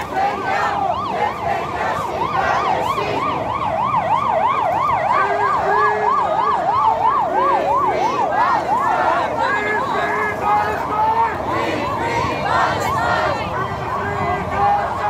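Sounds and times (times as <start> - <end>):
electronic siren yelping: 0.1 - 15.0.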